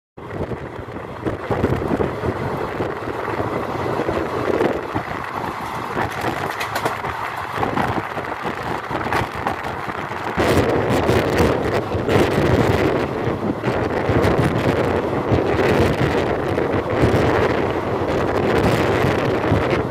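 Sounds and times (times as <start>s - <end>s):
train wheels rumbling on rails: 0.2s - 19.9s
wind on microphone: 0.2s - 19.9s
sharp clicks of rails: 4.7s - 10.4s.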